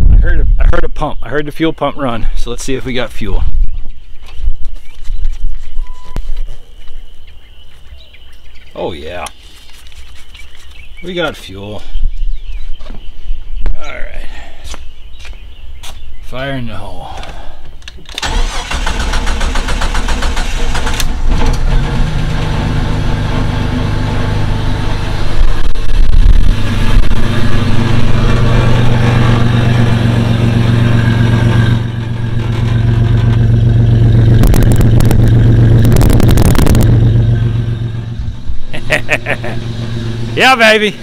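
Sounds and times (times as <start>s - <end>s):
car engine cranking and revving: 18.1s - 41.0s.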